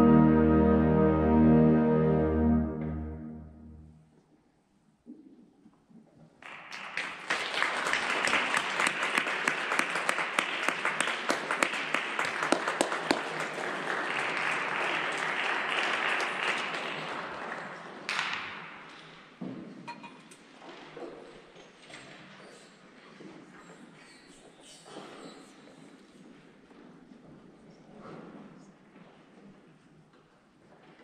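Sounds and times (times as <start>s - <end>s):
audience applauding: 6.4s - 18.4s.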